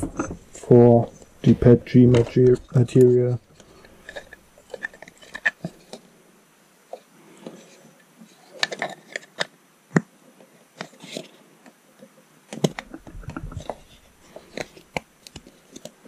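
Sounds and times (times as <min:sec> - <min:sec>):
plastic parts clicking and knocking: 0:00.0 - 0:06.0, 0:08.5 - 0:10.1, 0:12.5 - 0:16.0.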